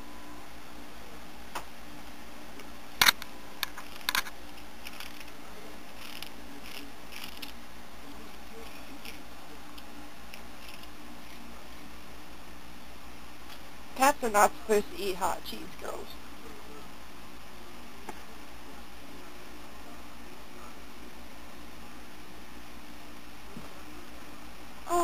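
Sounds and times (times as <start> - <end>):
kitten crunching snack: 3.8 - 7.6, 8.2 - 11.5.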